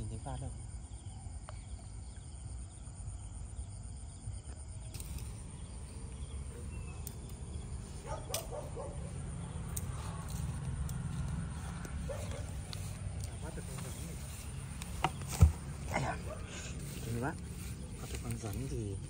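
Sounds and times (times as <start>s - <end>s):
crickets chirring: 0.0s - 19.0s.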